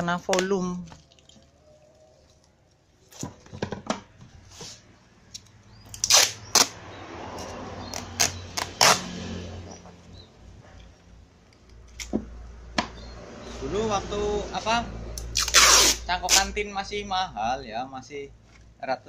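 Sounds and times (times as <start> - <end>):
packing tape ripping off roll: 5.9 - 6.8, 7.9 - 9.2, 15.3 - 16.5.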